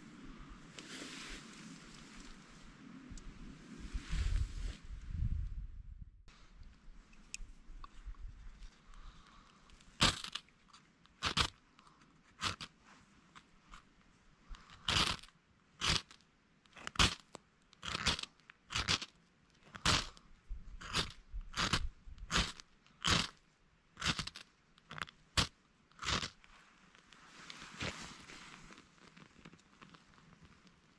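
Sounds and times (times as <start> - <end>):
knife scraping wood: 14.7 - 16.2, 16.8 - 19.1, 20.8 - 23.4, 24.0 - 26.5.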